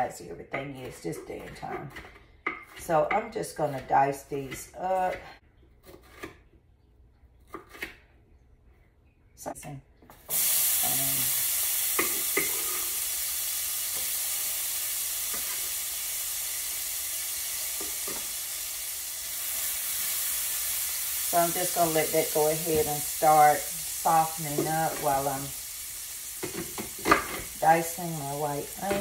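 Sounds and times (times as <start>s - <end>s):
pepper sizzling in hot oil: 10.2s - 29.0s.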